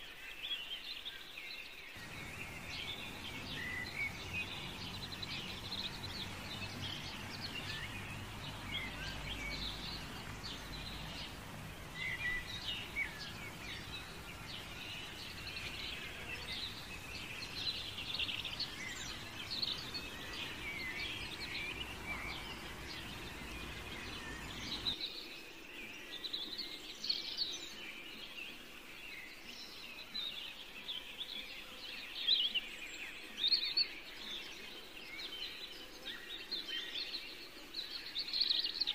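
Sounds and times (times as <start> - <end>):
birds chirping: 1.9 - 25.4.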